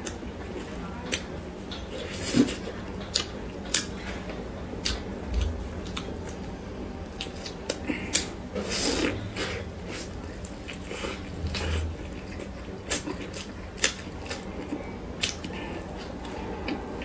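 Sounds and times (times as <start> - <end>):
chewing: 7.2 - 16.8.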